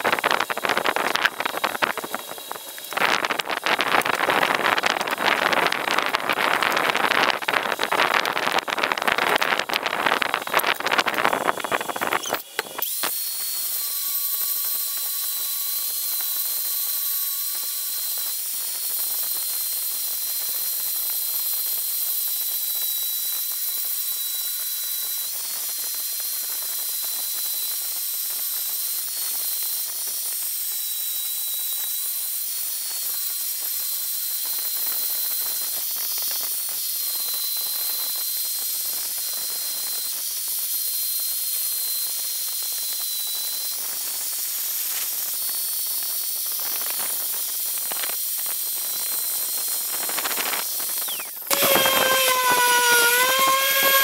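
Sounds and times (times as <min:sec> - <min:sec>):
angle grinder grinding metal: 0:00.0 - 0:21.1, 0:21.7 - 0:54.0.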